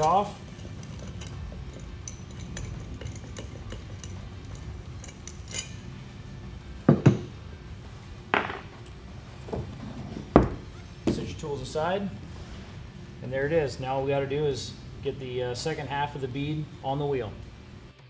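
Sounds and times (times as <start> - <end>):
metal tools clinking: 0.0 - 7.4.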